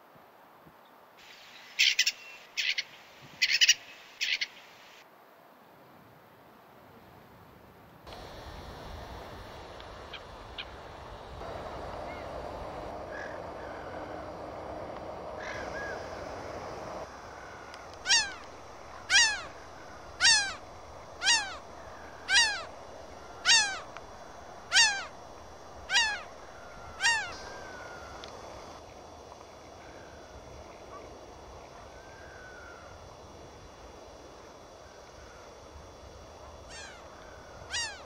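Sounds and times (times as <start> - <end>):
gull calling: 12.0 - 12.4, 13.0 - 14.4, 15.4 - 16.4, 17.0 - 28.4, 36.7 - 38.0.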